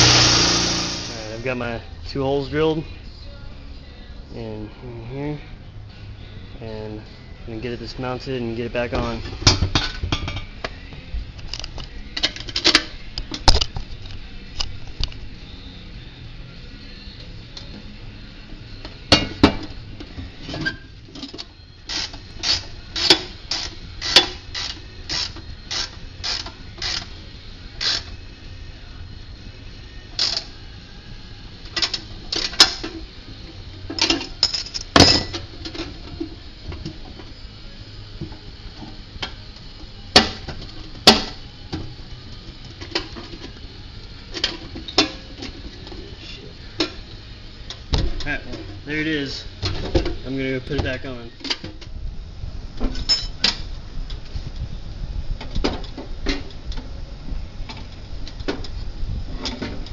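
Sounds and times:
ratchet wrench clicking: 21.8s - 27.1s, 27.8s - 28.1s, 30.2s - 30.5s
metal parts clinking: 52.9s - 53.6s.

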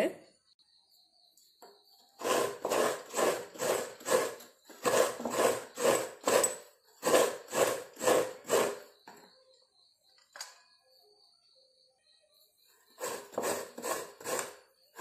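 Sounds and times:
coconut scraper rasping: 2.2s - 9.0s, 13.0s - 15.0s.

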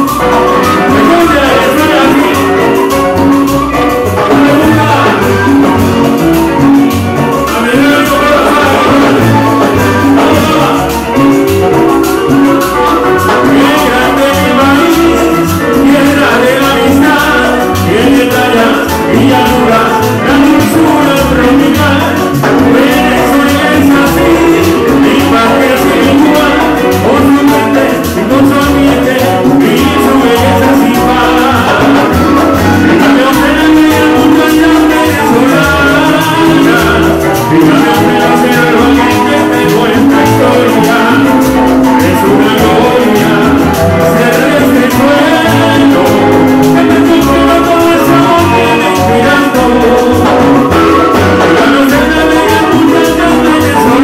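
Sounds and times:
live latin band music: 0.0s - 54.0s
pulsing bass line: 0.0s - 54.0s.

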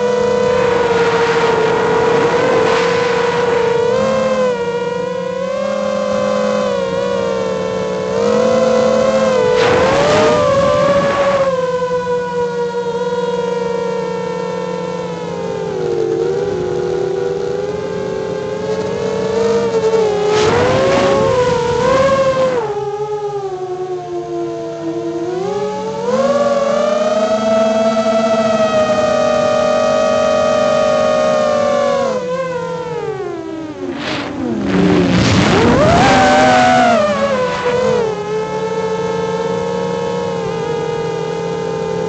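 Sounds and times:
drone propellers whining: 0.0s - 42.0s
rush of air noise: 0.6s - 3.9s, 33.9s - 36.4s
rush of air: 33.9s - 36.2s.

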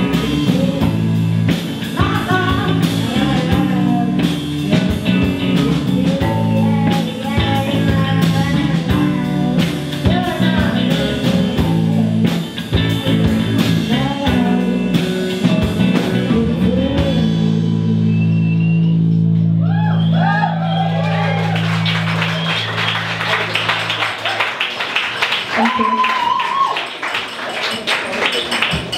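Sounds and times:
woman singing: 0.0s - 18.3s
electric guitars: 0.0s - 24.3s
bass guitar: 0.0s - 26.7s
drums: 0.0s - 28.9s.

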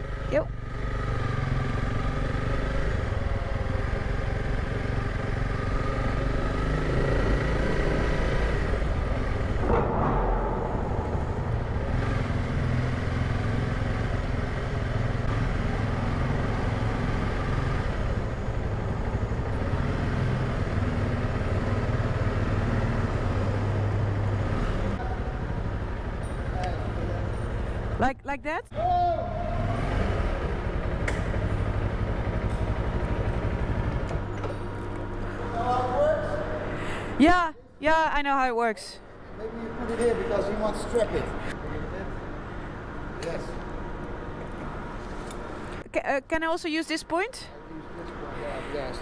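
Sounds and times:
motorcycle engine running: 0.0s - 36.7s.

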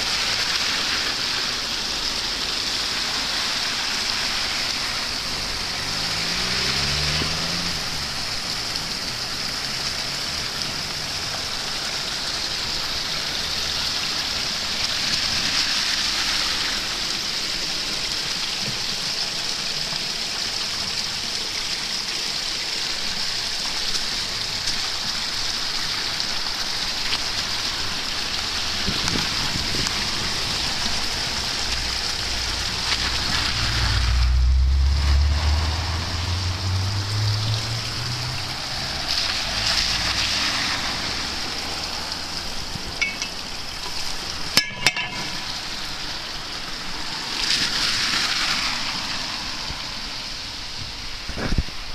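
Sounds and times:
tyres splashing through water: 0.0s - 51.9s
water rushing into storm drain: 0.0s - 51.9s
car engine: 4.4s - 11.4s.

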